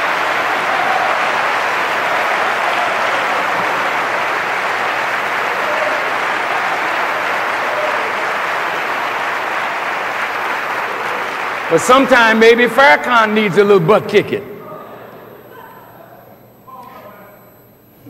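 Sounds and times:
large crowd applauding: 0:00.0 - 0:13.8.

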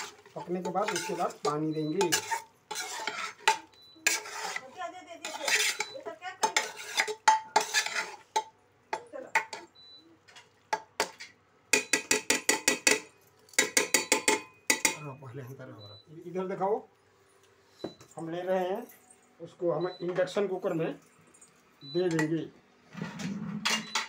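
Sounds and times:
spatula scraping a pot: 0:00.0 - 0:08.5.

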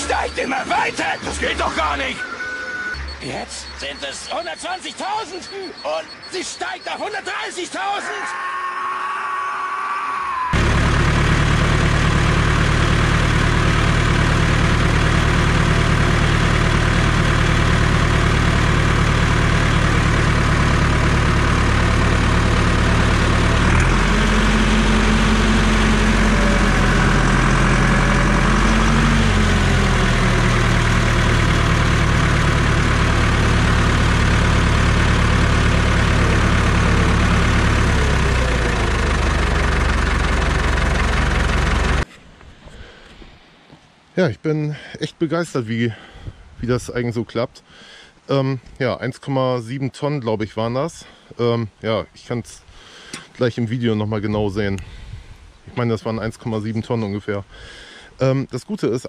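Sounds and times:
hydraulic whine: 0:00.0 - 0:04.8, 0:10.6 - 0:42.1
tractor diesel engine running: 0:00.0 - 0:08.0, 0:10.6 - 0:42.1.

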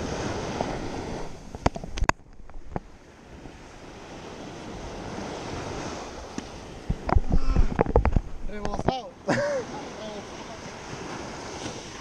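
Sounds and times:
wind on microphone: 0:00.0 - 0:09.1
small waves breaking on beach: 0:00.0 - 0:12.0.

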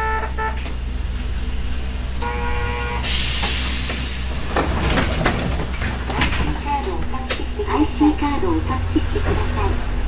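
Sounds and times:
tram motor rumble: 0:00.0 - 0:10.0
wheels clicking over rail joints: 0:03.4 - 0:07.8.

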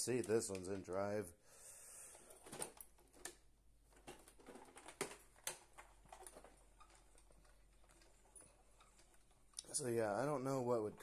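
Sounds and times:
faint handling clicks and knocks: 0:00.0 - 0:01.1, 0:02.1 - 0:11.0.

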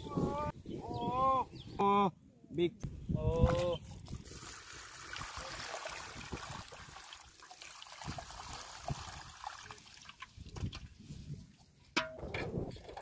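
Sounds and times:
water splashing in a metal pot: 0:04.2 - 0:10.9.

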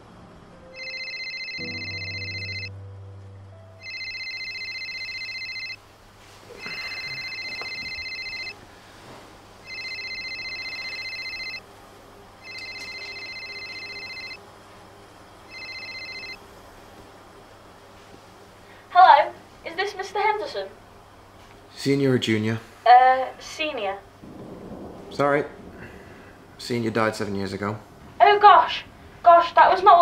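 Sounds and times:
mobile phone ringtone trilling: 0:00.8 - 0:02.7, 0:03.8 - 0:05.8, 0:06.5 - 0:08.6, 0:09.6 - 0:11.6, 0:12.4 - 0:14.4, 0:15.5 - 0:16.4.

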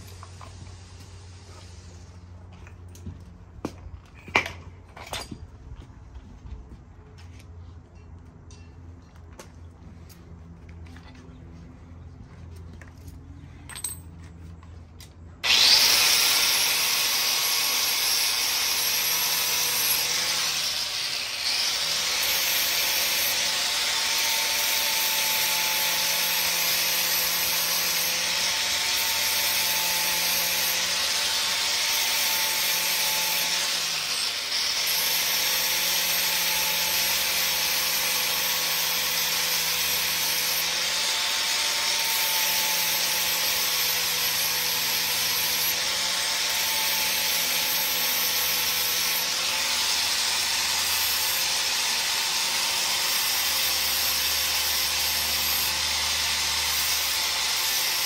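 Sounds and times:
electric grinder on metal: 0:15.4 - 0:58.0.

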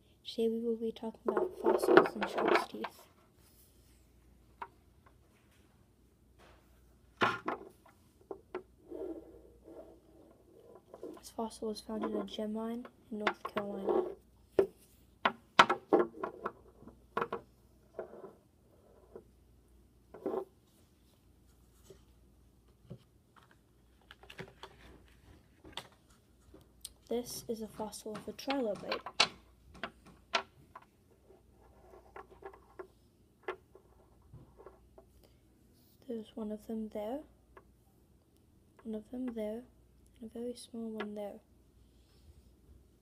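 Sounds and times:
objects handled on wooden table: 0:06.4 - 0:11.3, 0:13.2 - 0:19.3, 0:20.1 - 0:20.6.

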